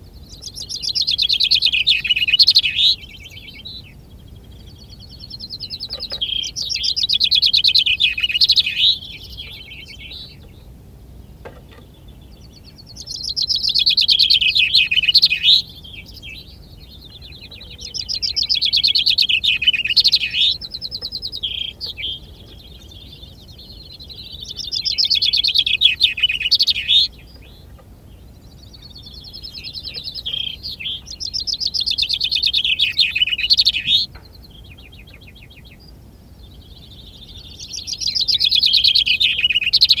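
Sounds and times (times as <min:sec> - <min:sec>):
chaffinch singing: 0:00.0 - 0:40.0.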